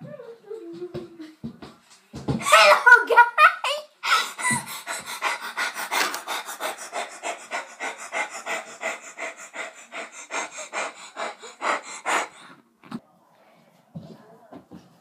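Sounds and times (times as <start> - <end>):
boy panting: 2.4 - 3.0, 4.0 - 12.7.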